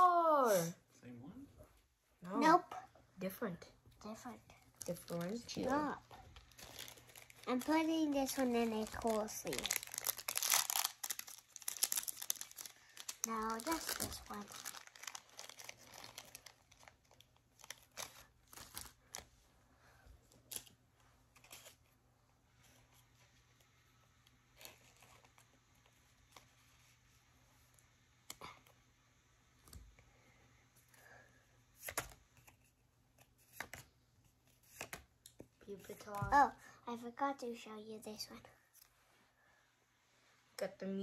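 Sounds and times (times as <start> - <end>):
plastic sleeve crinkling: 4.7 - 19.3.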